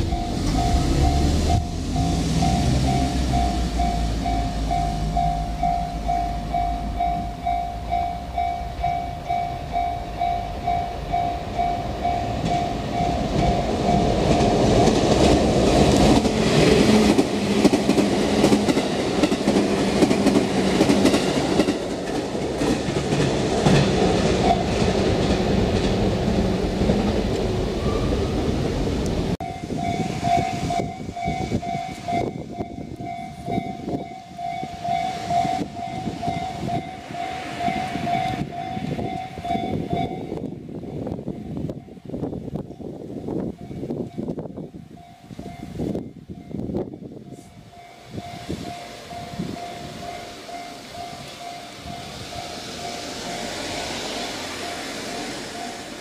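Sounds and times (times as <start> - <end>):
level crossing warning bell: 0.0 - 22.0, 24.1 - 25.0, 29.4 - 42.2, 43.5 - 56.0
electric train passing: 0.0 - 56.0
train wheels clattering: 12.0 - 28.3.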